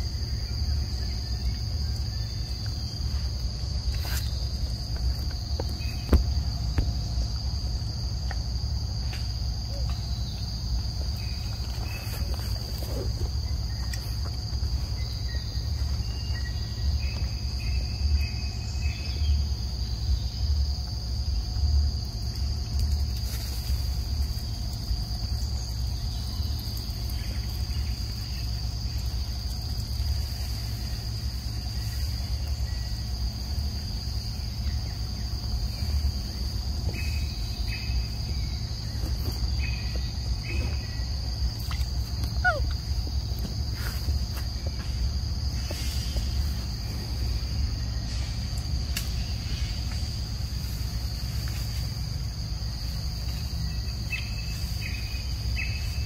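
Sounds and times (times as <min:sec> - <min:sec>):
insects droning: 0:00.0 - 0:56.0
faint chirps and clicks: 0:00.9 - 0:07.4, 0:08.2 - 0:33.2, 0:35.7 - 0:43.6, 0:48.0 - 0:51.9.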